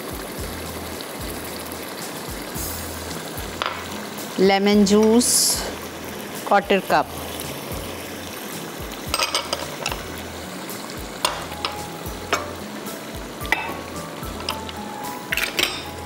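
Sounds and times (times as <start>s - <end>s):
food sizzling in a pan: 0.0s - 16.0s
spoon scraping and clinking on pan: 9.1s - 10.0s, 11.2s - 12.6s, 13.5s - 15.9s.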